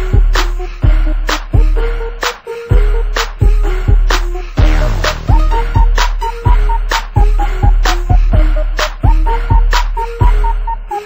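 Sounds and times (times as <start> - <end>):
electronic music with bass beat: 0.0 - 11.0
falling synth sweep: 4.6 - 6.4.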